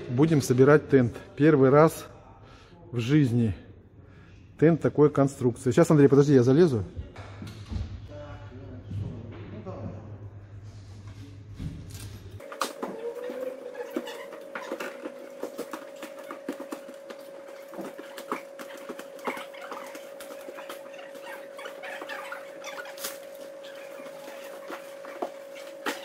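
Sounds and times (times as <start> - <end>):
canvas rustling: 12.4 - 26.0.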